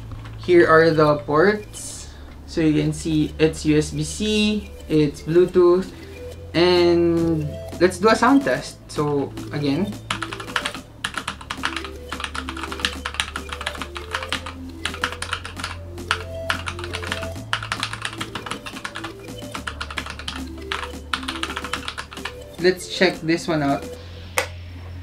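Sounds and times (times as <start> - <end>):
background music: 0.0 - 25.0
mechanical keyboard typing: 9.8 - 22.8.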